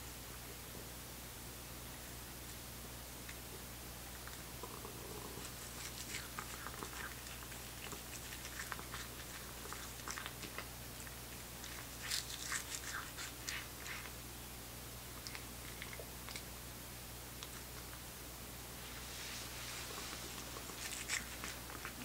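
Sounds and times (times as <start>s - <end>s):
cat chewing crackling bites: 5.2s - 14.2s, 15.1s - 16.6s, 19.8s - 22.0s.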